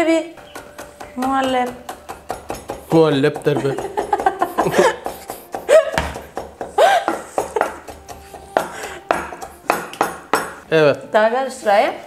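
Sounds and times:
knife chopping on wooden board: 0.4s - 10.6s
whisk knocking against pot: 0.4s - 10.6s
person laughing: 3.4s - 6.1s, 6.7s - 8.0s.

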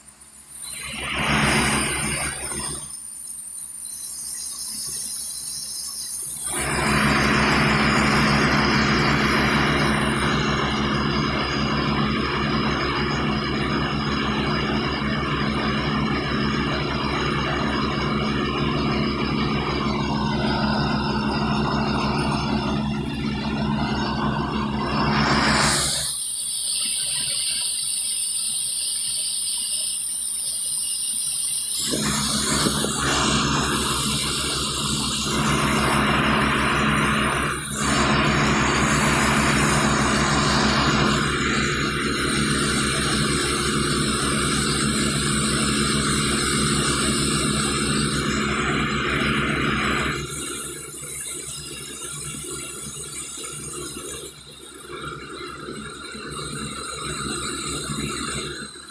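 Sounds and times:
diesel engine running: 0.9s - 2.8s, 6.5s - 26.1s, 31.8s - 54.4s
air and water hissing from hose: 24.6s - 38.0s.

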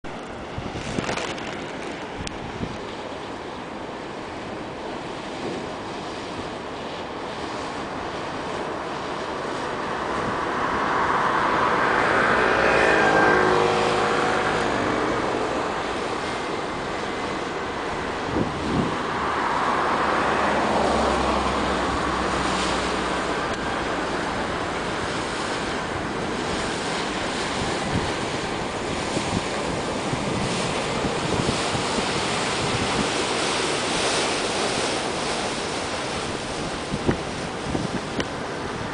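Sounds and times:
water rushing from bow wave: 0.0s - 38.9s
wind buffeting microphone: 0.0s - 38.9s
passing motor: 9.6s - 37.0s.

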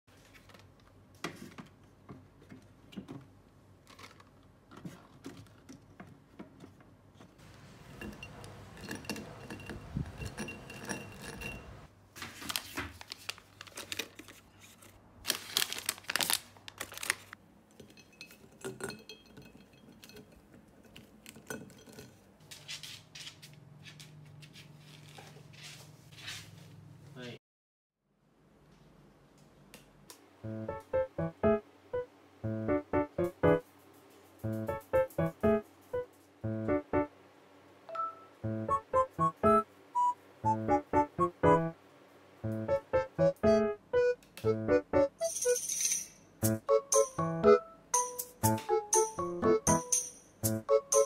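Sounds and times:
packaging crinkling: 3.8s - 4.4s, 12.2s - 17.4s.

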